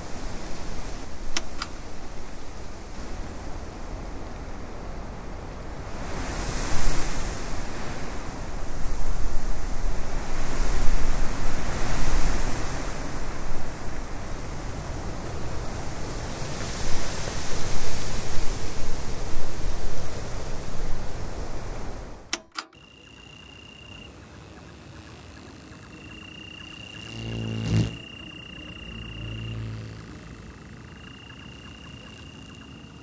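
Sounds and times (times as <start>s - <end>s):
click: 1.3s - 1.8s, 22.3s - 23.1s
steady high thin tone: 22.7s - 33.0s.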